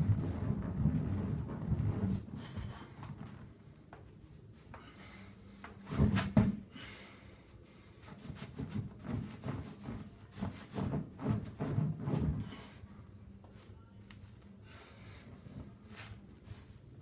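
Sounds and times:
rubbing on exercise ball: 0:00.0 - 0:03.4, 0:08.0 - 0:12.9.

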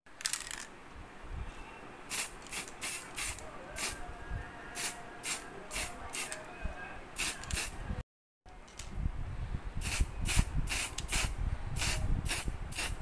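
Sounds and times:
aerosol spray can hissing: 0:02.1 - 0:04.0, 0:09.8 - 0:13.0.

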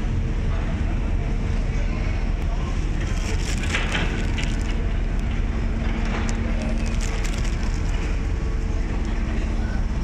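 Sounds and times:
ferry engines rumbling: 0:00.0 - 0:10.0
crackles and clicks: 0:03.0 - 0:08.4.

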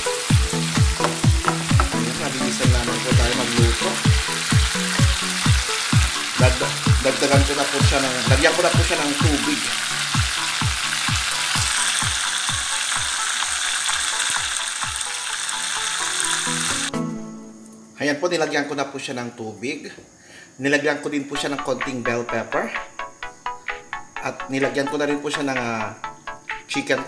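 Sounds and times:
chicken sizzling in oil: 0:00.0 - 0:16.9
background music with kick drum: 0:00.0 - 0:17.6, 0:21.4 - 0:27.0.

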